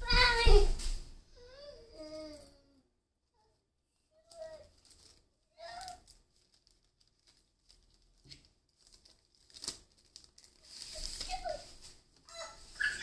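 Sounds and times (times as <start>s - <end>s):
plastic bag crinkling: 4.3s - 13.0s.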